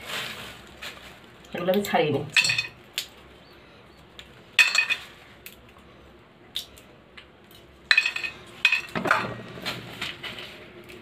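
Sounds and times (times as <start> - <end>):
peanut shells cracking: 1.4 - 3.3, 4.1 - 5.8, 6.5 - 9.0
kernels clinking into metal bowl: 2.2 - 2.8, 4.6 - 5.1, 7.9 - 9.4.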